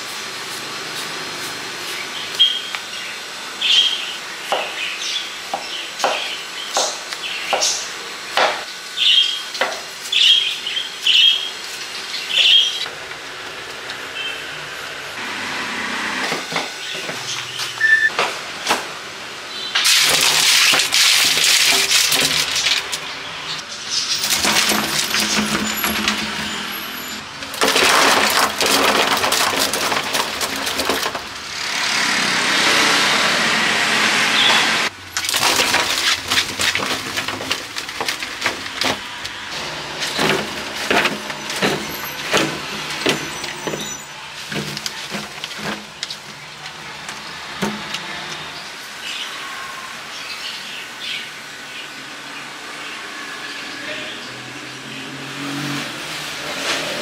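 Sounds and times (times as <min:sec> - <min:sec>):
fruit slices clattering onto heap: 0:19.8 - 0:23.2, 0:23.9 - 0:26.7, 0:27.4 - 0:31.6, 0:35.1 - 0:48.4.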